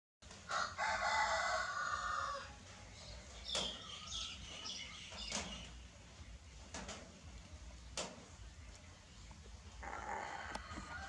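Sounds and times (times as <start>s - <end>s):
rooster crowing: 0.5s - 2.5s, 9.8s - 11.0s.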